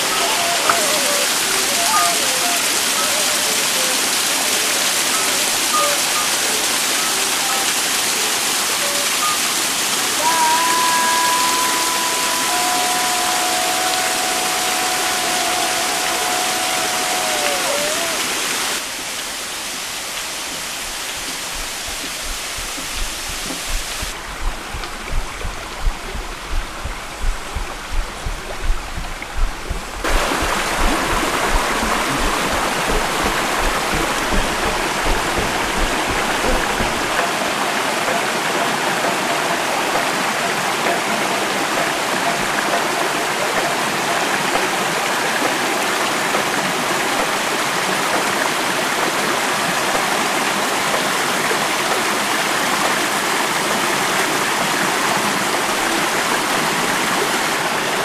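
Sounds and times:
stream rushing over rocks: 0.0 - 58.0
low irregular rumble: 20.9 - 37.2.

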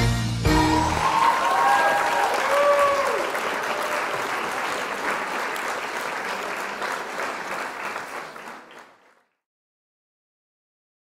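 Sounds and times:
audience applause: 0.5 - 9.4.

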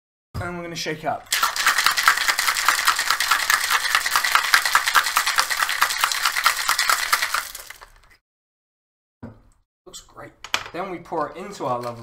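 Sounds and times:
ice rattling in cocktail shaker: 1.2 - 8.1.

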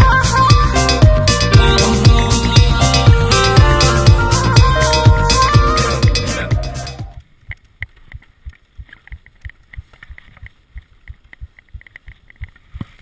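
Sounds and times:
background music: 0.0 - 7.2.

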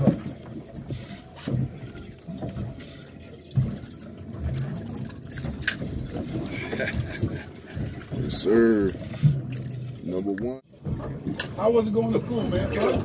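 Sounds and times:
water sloshing against boat hull: 0.0 - 13.0.

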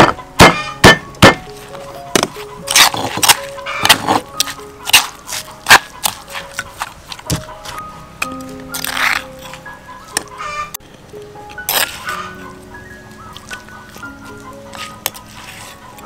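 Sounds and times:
stone pestle knocking in mortar: 0.0 - 1.4
background music with held notes: 0.0 - 16.0.

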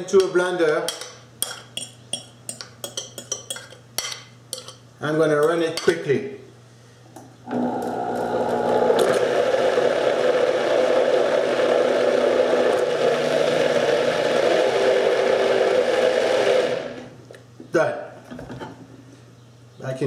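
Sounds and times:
blender running: 7.5 - 17.2.

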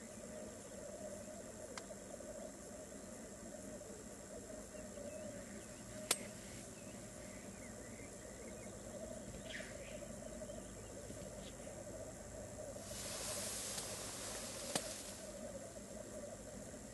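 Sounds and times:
black grouse bubbling chorus: 0.0 - 16.9
sharp click: 6.0 - 6.3, 14.6 - 15.0
short falling bird call: 12.8 - 15.4.

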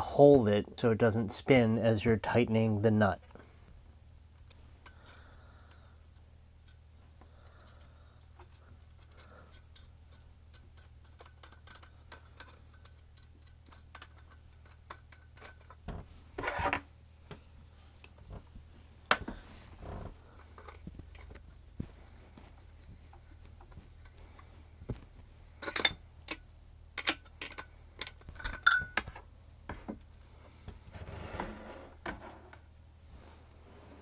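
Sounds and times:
steady low hum: 0.0 - 34.0
metal washers and nuts clinking: 4.4 - 16.7, 20.4 - 21.6, 25.5 - 29.3.

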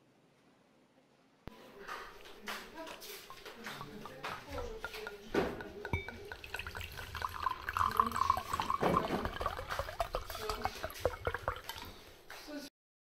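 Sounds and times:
water dripping and trickling: 2.2 - 12.4.

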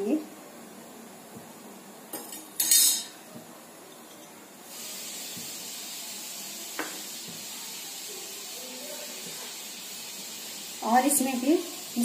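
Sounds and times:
ghee hissing in pan: 4.6 - 12.0.

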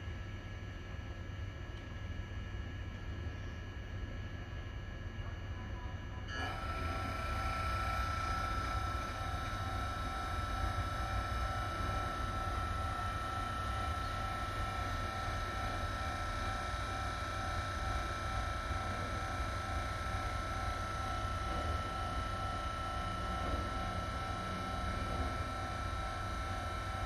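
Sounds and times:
multi-tone whine: 0.0 - 27.0
locomotive low rumble: 5.2 - 16.4, 18.3 - 27.0.

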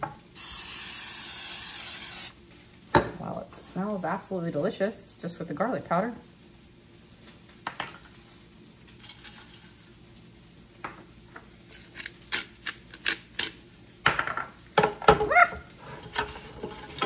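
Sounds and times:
utensil clicking and scraping bowl: 11.7 - 13.6.

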